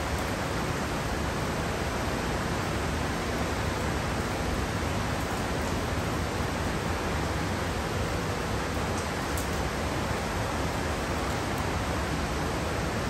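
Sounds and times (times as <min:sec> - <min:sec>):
heavy rain falling: 0:00.0 - 0:13.0.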